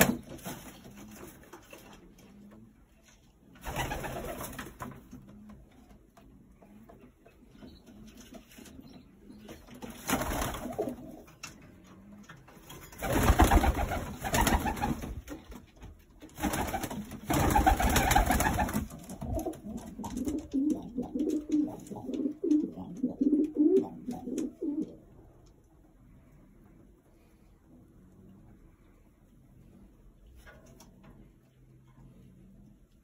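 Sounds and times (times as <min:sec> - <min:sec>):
pigeons cooing: 0:10.4 - 0:12.5, 0:17.3 - 0:25.2.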